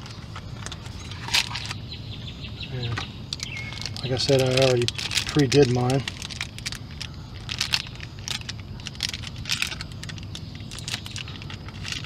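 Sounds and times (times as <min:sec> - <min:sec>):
plastic bag crinkling: 0:03.4 - 0:12.0.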